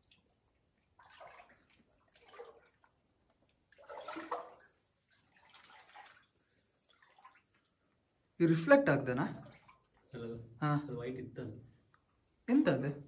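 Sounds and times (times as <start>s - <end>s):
water trickling and dripping: 0.0s - 8.4s, 9.1s - 10.3s.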